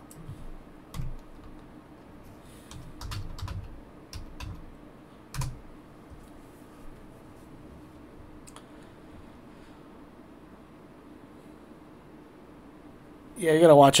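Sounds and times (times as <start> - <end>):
computer keyboard key clicks: 2.7 - 4.6.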